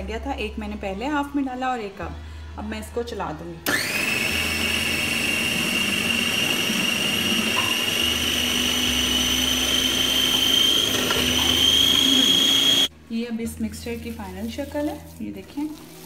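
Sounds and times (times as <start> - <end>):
food processor motor whine: 3.6 - 12.9.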